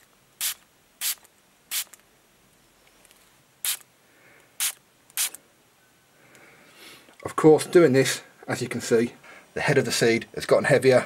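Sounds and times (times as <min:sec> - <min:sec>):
spray bottle hissing: 0:00.4 - 0:02.0, 0:03.6 - 0:03.9, 0:04.6 - 0:05.4.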